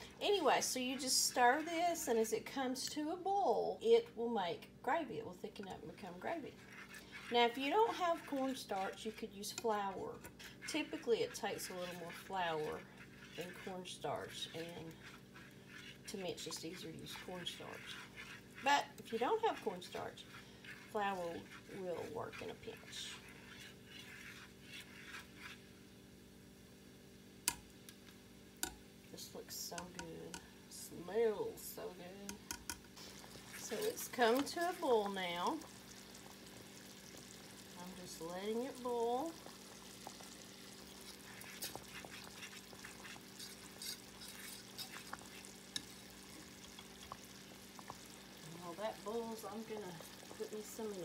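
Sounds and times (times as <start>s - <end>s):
whisk scraping saucepan: 0.0s - 3.0s, 5.5s - 25.8s, 32.4s - 51.0s
gravy boiling with pops: 0.0s - 51.0s.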